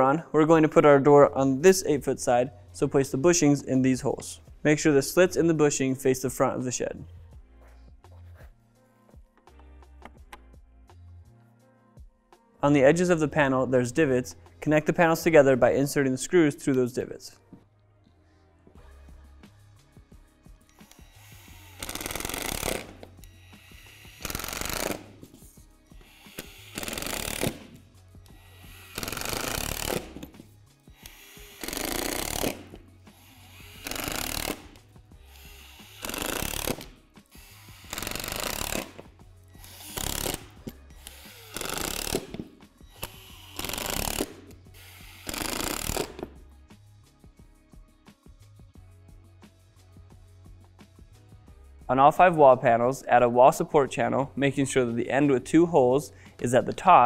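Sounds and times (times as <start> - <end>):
cordless driver driving screws: 20.7 - 25.3, 26.0 - 30.4, 31.0 - 39.0, 39.6 - 46.3.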